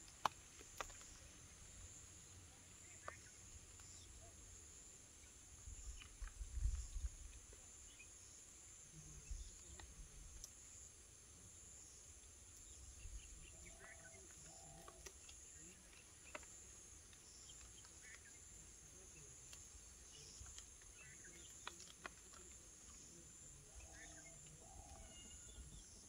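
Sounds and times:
faint bird chirps: 0:00.9 - 0:10.9, 0:11.8 - 0:26.0
parakeets cracking seeds: 0:19.5 - 0:23.1.

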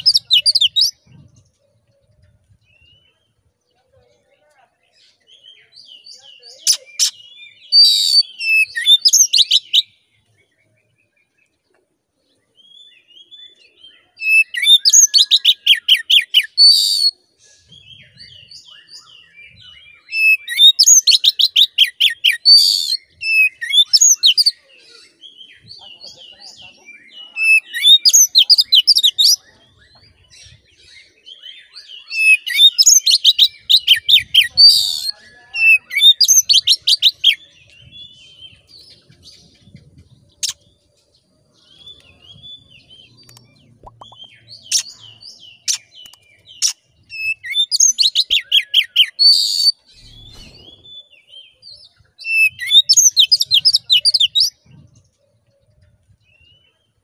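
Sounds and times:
magpie-robin singing rapid notes: 0:52.3 - 0:54.5.

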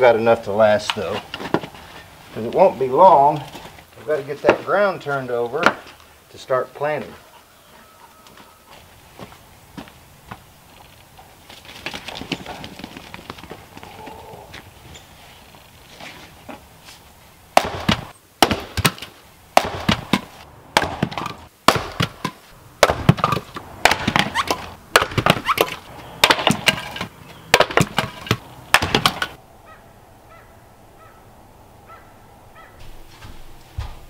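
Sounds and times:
maul striking firewood: 0:17.5 - 0:29.4
wood cracking apart: 0:20.8 - 0:29.4.

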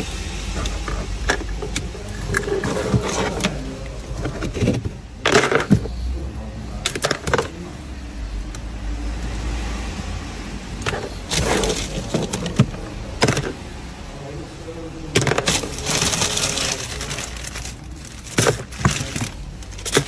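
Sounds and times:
wires rustling: 0:10.7 - 0:13.6, 0:15.1 - 0:20.0
plastic bag crinkling: 0:11.2 - 0:12.6, 0:15.2 - 0:20.0.

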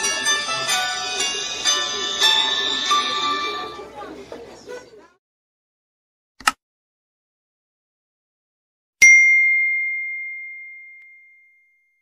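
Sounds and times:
high bell ding: 0:09.0 - 0:12.0.

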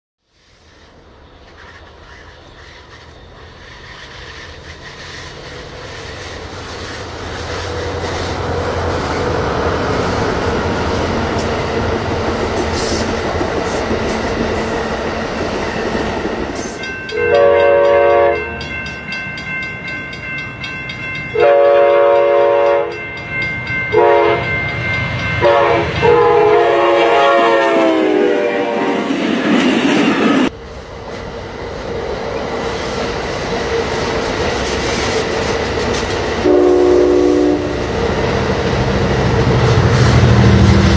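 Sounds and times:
train engine rumble: 0:00.4 - 0:40.9
train wheel noise: 0:00.4 - 0:40.9
locomotive air horn blasts: 0:17.1 - 0:18.5, 0:21.4 - 0:23.0, 0:23.9 - 0:24.5, 0:25.4 - 0:29.1, 0:36.4 - 0:38.0.

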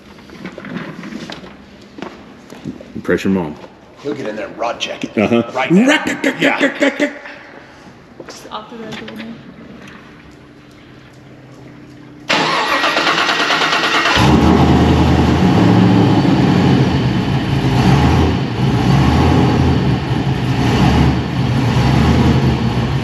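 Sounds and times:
engine starter cranking: 0:12.3 - 0:15.0
car engine idling: 0:12.3 - 0:23.0.

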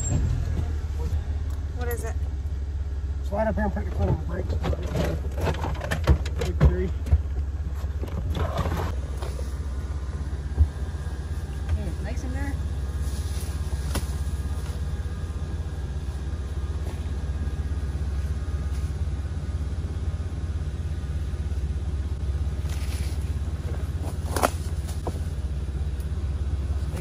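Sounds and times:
engine idling: 0:00.0 - 0:27.0.

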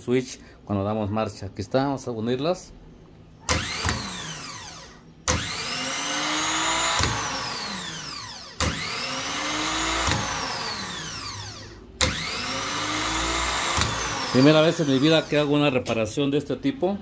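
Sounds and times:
starter motor whine: 0:03.4 - 0:15.7.

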